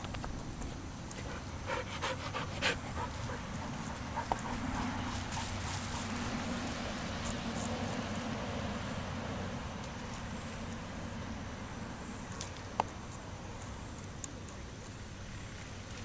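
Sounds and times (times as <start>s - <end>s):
dog panting: 1.1s - 6.0s.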